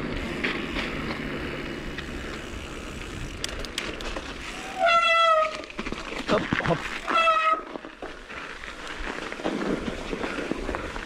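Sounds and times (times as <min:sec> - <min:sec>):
sharp clicks: 0:03.2 - 0:04.3
brake squeal: 0:04.4 - 0:05.7, 0:07.0 - 0:07.7.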